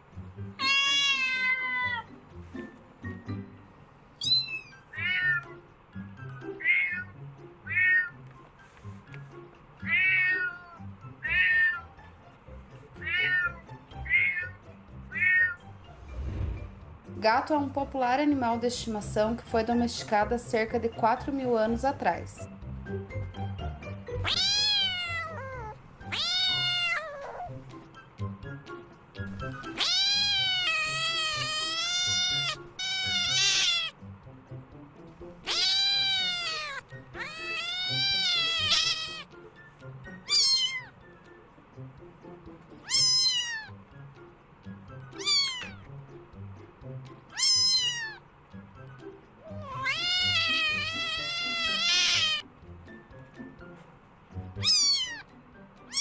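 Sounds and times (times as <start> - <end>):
soft background music: 0.0 - 56.0
kitten meowing: 0.6 - 2.1, 4.2 - 5.5, 6.6 - 7.1, 7.7 - 8.2, 9.8 - 12.0, 13.0 - 15.6, 24.2 - 27.6, 29.6 - 34.0, 35.4 - 39.4, 40.2 - 41.0, 42.8 - 43.8, 45.2 - 45.9, 47.3 - 48.2, 49.4 - 52.4, 54.6 - 55.3.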